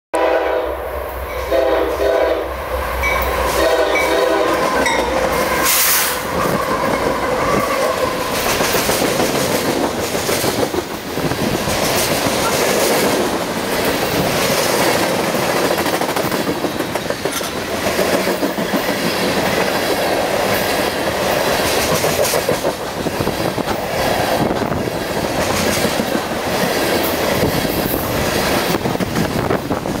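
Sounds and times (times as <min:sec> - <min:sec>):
train horn blasts: 0:00.1 - 0:06.2
train wheels clattering on rails: 0:03.0 - 0:30.0.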